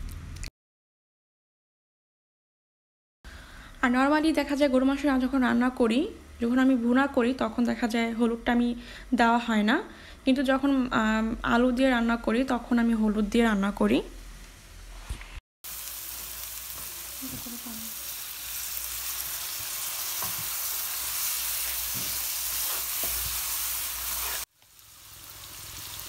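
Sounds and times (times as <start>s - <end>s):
onions sizzling in a frying pan: 15.6s - 26.0s
wooden spatula scraping pan: 21.5s - 24.5s.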